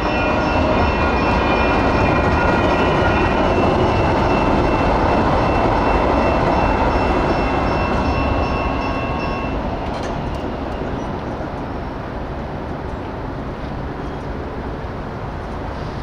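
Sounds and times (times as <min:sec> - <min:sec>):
high steady ringing tones: 0:00.0 - 0:11.1
train rumbling past: 0:00.0 - 0:16.0.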